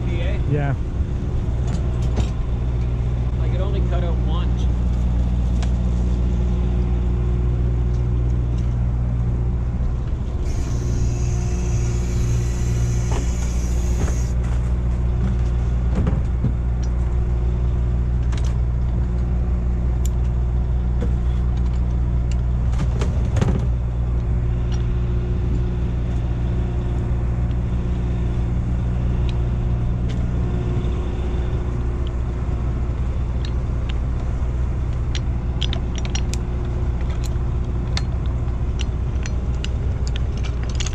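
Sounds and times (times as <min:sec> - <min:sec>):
boat engine droning: 0:00.0 - 0:16.0, 0:23.3 - 0:40.8
high hiss: 0:10.4 - 0:14.4
metallic clicks and knocks: 0:34.9 - 0:40.9.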